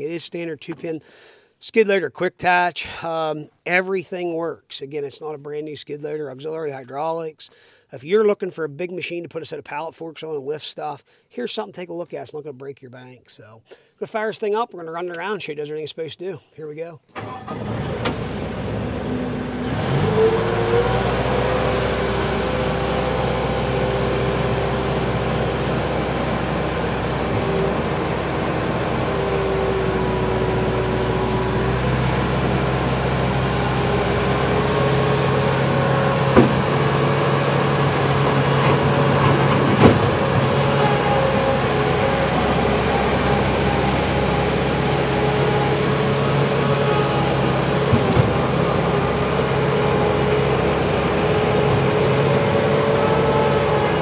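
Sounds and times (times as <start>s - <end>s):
diesel engine cranking and running: 17.1s - 54.0s
sharp knocks: 36.3s - 36.8s.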